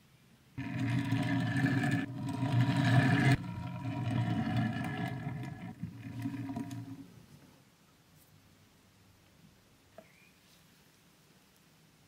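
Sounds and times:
toy truck wheels rumbling on table: 0:00.6 - 0:07.1.

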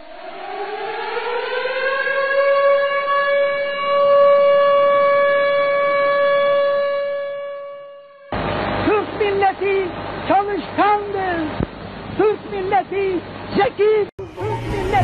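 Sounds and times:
civil defence siren: 0:00.0 - 0:08.4.

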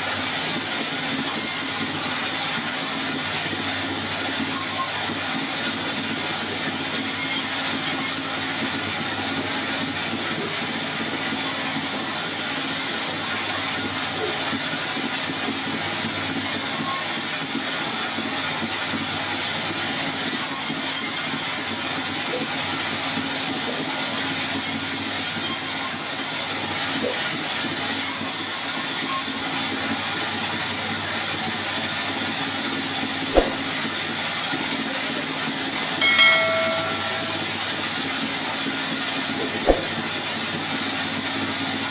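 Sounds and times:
band saw cutting wood: 0:01.1 - 0:03.1, 0:04.2 - 0:06.1, 0:06.7 - 0:08.4, 0:32.3 - 0:34.9.

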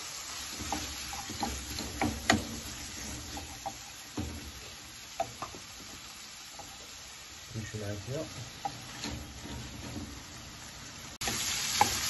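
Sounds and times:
seafood sizzling in oil: 0:00.0 - 0:12.0
spatula tapping pan: 0:00.3 - 0:07.0, 0:08.4 - 0:10.3, 0:11.2 - 0:12.0.

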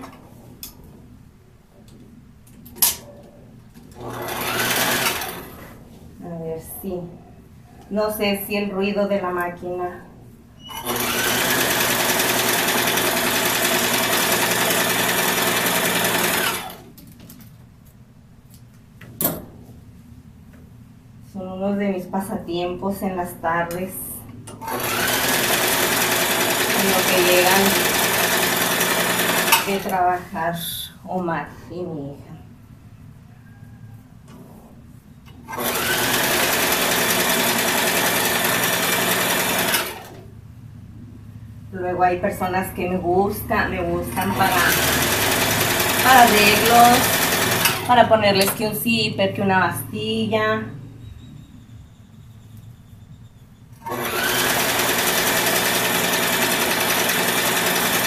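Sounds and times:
sewing machine running: 0:03.9 - 0:05.7, 0:10.7 - 0:16.9, 0:24.6 - 0:29.9, 0:35.5 - 0:40.2, 0:44.1 - 0:48.6, 0:53.8 - 0:58.0.

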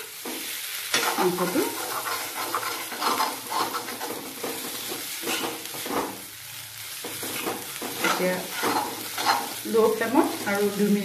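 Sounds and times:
meat sizzling: 0:00.0 - 0:11.0
metal spoon scraping a pan: 0:00.8 - 0:06.2, 0:07.0 - 0:11.0.

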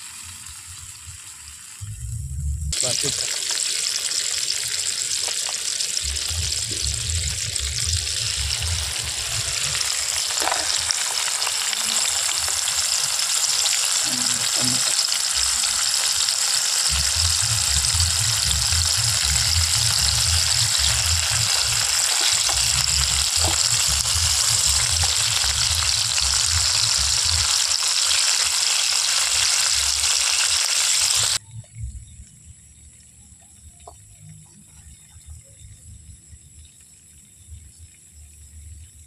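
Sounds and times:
fish sizzling in hot oil: 0:00.0 - 0:01.8, 0:02.7 - 0:31.4.

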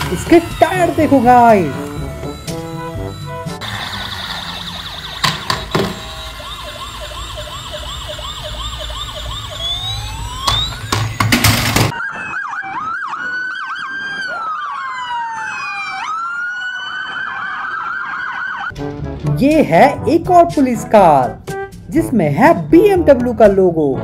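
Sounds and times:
toy siren yelping and wailing: 0:00.0 - 0:18.7.

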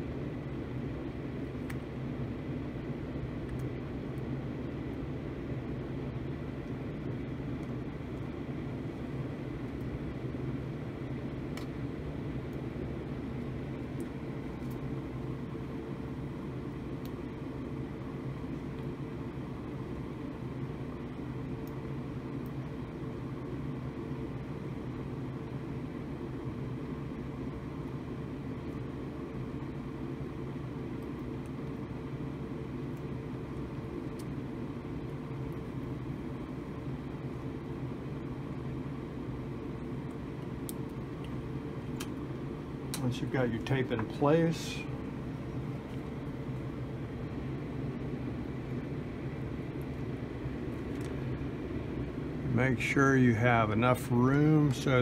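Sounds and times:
blower fan humming: 0:00.0 - 0:55.0.

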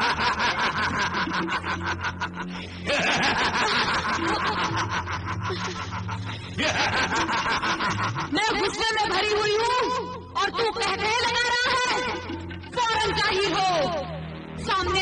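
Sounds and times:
person laughing: 0:00.0 - 0:08.4.

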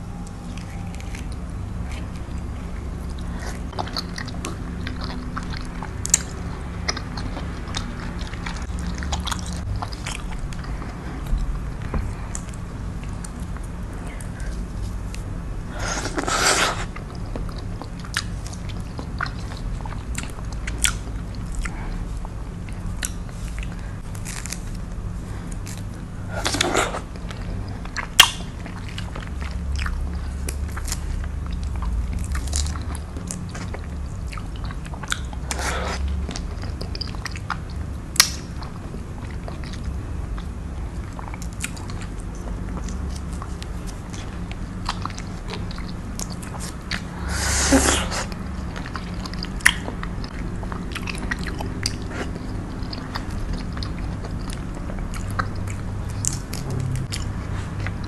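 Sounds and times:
wet chewing and sucking: 0:00.2 - 0:58.0
fruit rind cracking: 0:24.1 - 0:27.0, 0:38.2 - 0:38.5.

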